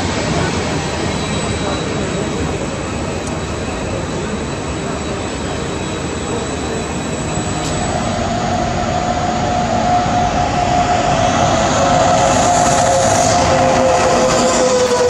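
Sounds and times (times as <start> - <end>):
locomotive whine: 0.0 - 15.0
train hiss: 0.0 - 15.0
train rolling noise: 0.0 - 15.0
falling pitch tone: 7.1 - 15.0.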